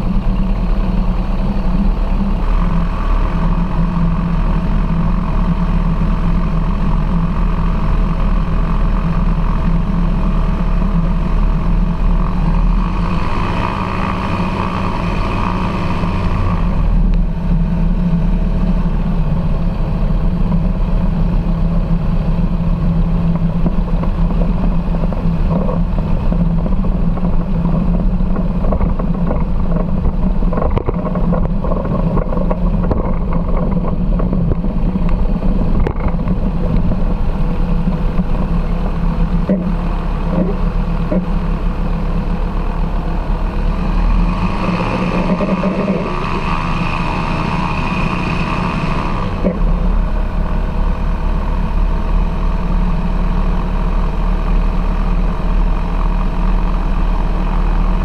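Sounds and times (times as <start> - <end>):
light aircraft engine and propeller: 0.0 - 58.0.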